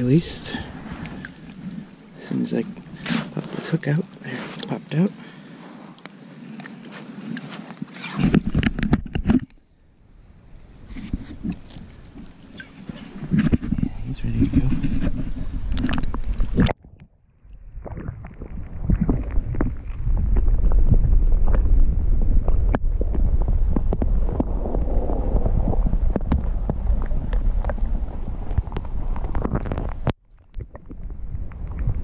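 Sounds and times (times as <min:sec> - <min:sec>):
underwater river churning: 0:00.0 - 0:07.4, 0:15.1 - 0:32.0
small underwater clicks: 0:15.7 - 0:17.1.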